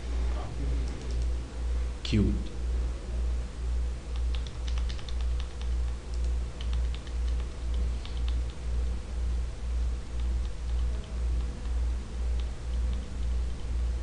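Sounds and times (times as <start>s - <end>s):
mouse and keyboard clicks: 4.1s - 8.6s.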